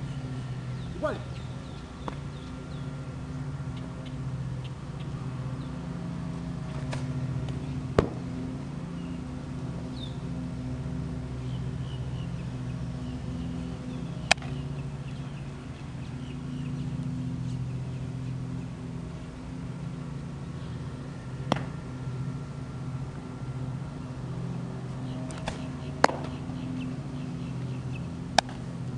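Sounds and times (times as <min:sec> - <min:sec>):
birds chirping: 0:00.0 - 0:28.9
low droning hum: 0:00.0 - 0:28.9
sharp smacks: 0:02.0 - 0:02.2, 0:06.7 - 0:08.2, 0:14.2 - 0:14.6, 0:21.5 - 0:21.8, 0:25.3 - 0:26.4, 0:28.3 - 0:28.6.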